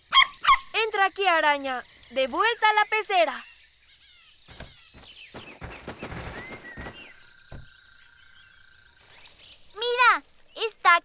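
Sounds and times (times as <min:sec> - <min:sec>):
faint bird chirps: 0:00.0 - 0:10.8
low thud: 0:04.5 - 0:07.8.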